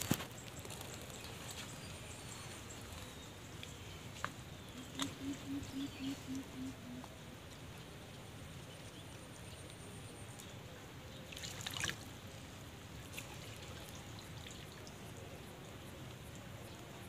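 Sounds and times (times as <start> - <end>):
water splashing: 11.2 - 15.4.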